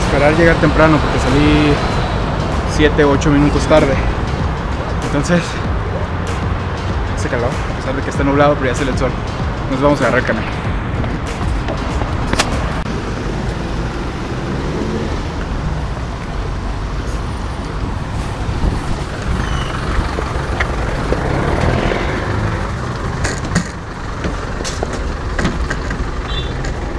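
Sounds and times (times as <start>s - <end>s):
bus engine rumbling: 0.0s - 26.9s
street traffic: 0.0s - 26.9s
sharp clicks and knocks: 23.2s - 26.9s.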